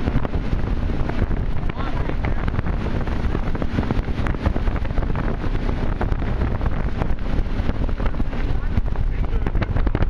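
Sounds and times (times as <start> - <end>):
boat engine running: 0.0 - 10.0
water rushing past: 0.0 - 10.0
wind buffeting microphone: 0.0 - 10.0.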